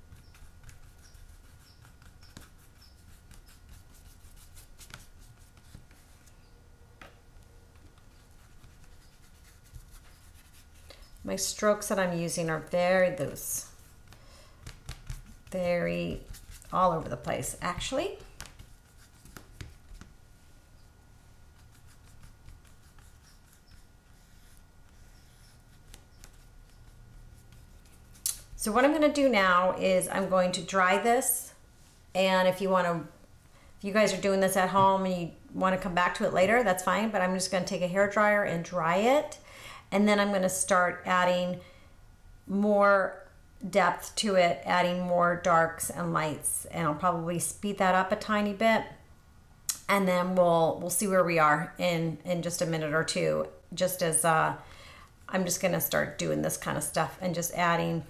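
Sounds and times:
paintbrush brushing on paper: 0.0 - 6.3, 7.8 - 11.3, 13.6 - 17.0, 17.8 - 28.2.

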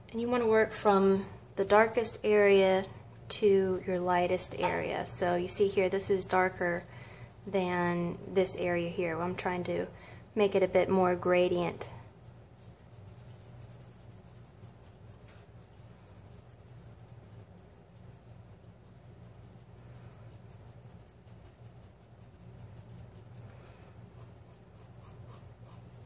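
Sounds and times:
pencil scratching on paper: 12.2 - 23.5, 24.1 - 25.9.

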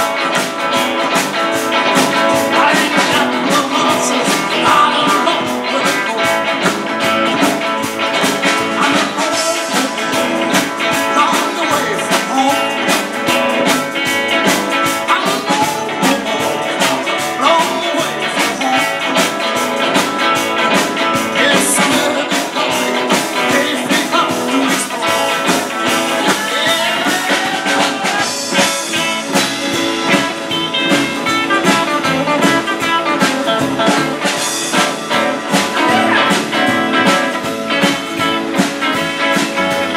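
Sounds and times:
guitar: 0.0 - 39.9
live blues rock band: 0.0 - 39.9
upright double bass: 0.0 - 39.9.

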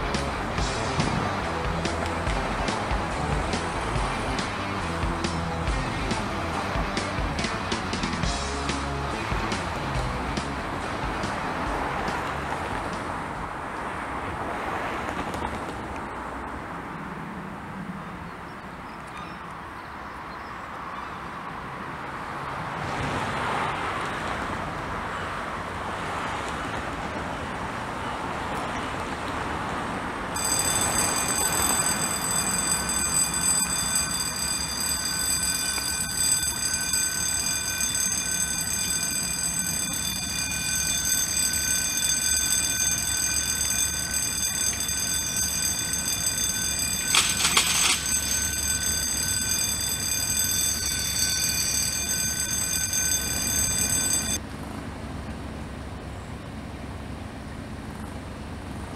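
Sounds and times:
diesel locomotive engine: 0.0 - 17.9, 23.2 - 58.9
high-pitched ringing squeal: 30.4 - 54.4
train wheels running: 30.4 - 54.4.

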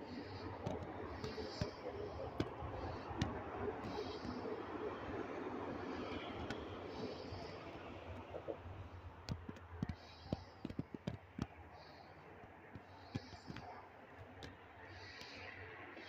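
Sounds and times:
faint steady background noise: 0.0 - 16.0
sharp clicks and light knocks: 0.3 - 4.7, 6.0 - 15.6.

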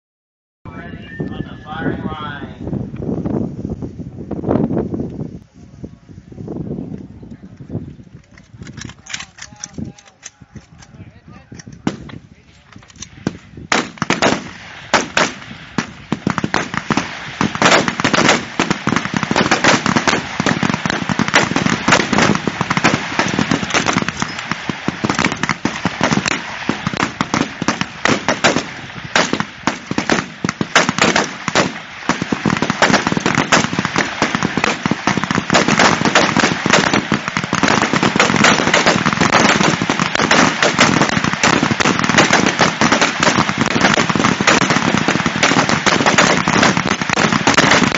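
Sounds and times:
rifle shots: 13.0 - 47.9.

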